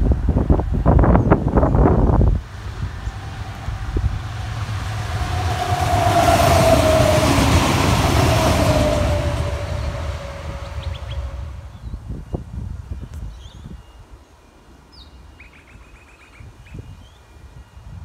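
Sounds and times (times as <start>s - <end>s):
steady tone falling in pitch: 0.0s - 12.0s
diesel railcar passing: 0.0s - 12.6s.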